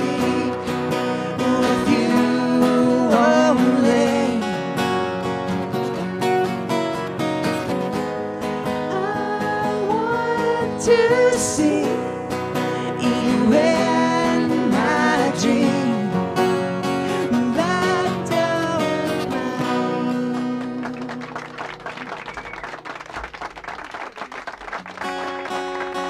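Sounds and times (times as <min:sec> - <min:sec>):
voices singing wordless notes: 0:00.0 - 0:04.8, 0:08.8 - 0:16.4
acoustic guitars strummed: 0:00.0 - 0:22.6, 0:24.8 - 0:26.0.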